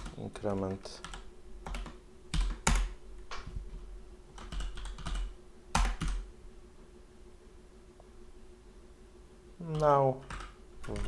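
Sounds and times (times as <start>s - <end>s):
typing on computer keyboard: 0.0s - 2.9s, 4.4s - 6.2s, 9.7s - 11.0s.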